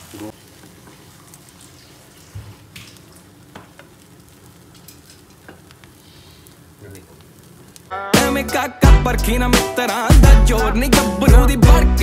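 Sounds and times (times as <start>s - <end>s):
omelette sizzling in a pan: 0.0s - 8.1s.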